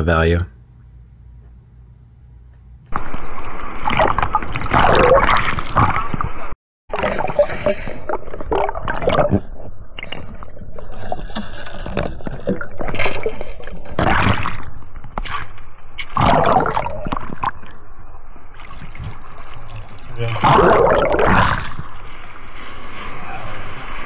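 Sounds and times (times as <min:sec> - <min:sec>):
surf sloshing and gurgling: 0:18.5 - 0:24.0
waves surging and splashing: 0:18.6 - 0:24.0.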